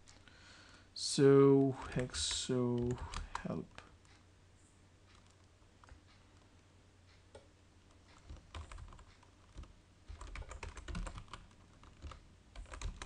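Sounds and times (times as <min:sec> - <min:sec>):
typing on keyboard: 0:01.6 - 0:03.9, 0:07.3 - 0:13.0.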